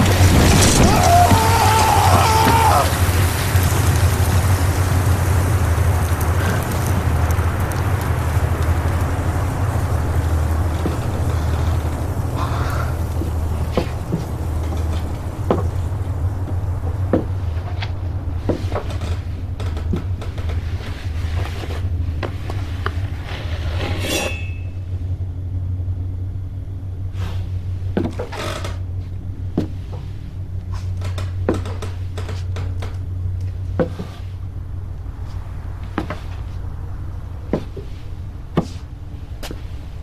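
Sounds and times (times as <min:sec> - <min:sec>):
steady low hum: 0:00.0 - 0:40.0
shimmering metallic rattle: 0:23.7 - 0:25.2
small clicks and clatters: 0:30.7 - 0:33.6.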